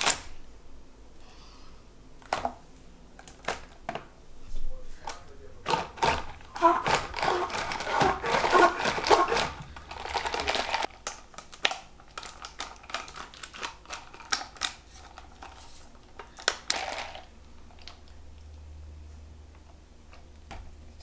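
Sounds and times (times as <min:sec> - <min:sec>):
kitchen items clicking and tapping: 0:05.6 - 0:17.9.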